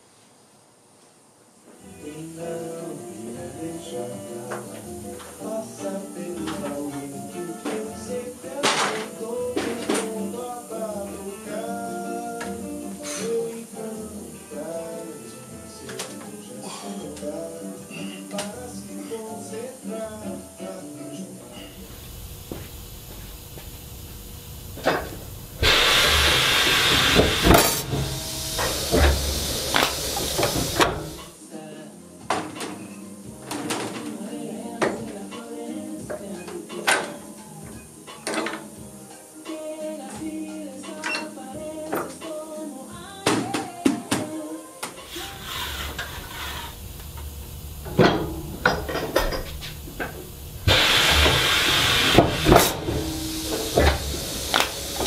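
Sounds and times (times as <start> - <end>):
metal shear rush of noise: 21.6 - 31.3, 45.1 - 55.0
low motor hum: 21.8 - 31.2, 45.1 - 55.0
metallic clunks and knocks: 27.1 - 31.2, 47.1 - 50.3, 52.2 - 54.8
metal shear clanking: 45.2 - 51.3.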